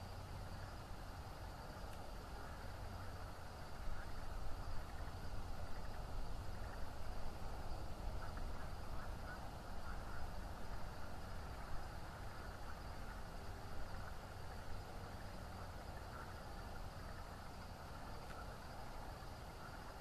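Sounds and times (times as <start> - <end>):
low rumble with hiss: 0.0 - 20.0.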